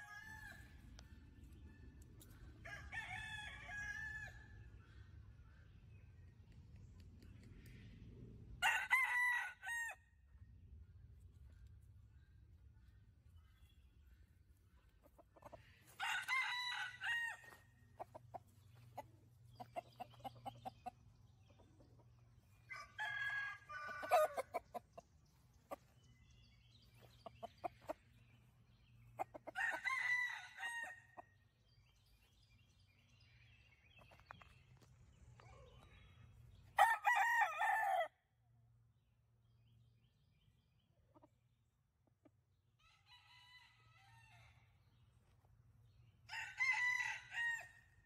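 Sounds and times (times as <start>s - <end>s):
rooster crowing: 2.6s - 4.5s, 8.6s - 10.0s, 15.9s - 17.6s, 22.7s - 24.6s, 29.6s - 31.1s, 36.8s - 38.1s, 46.3s - 47.8s.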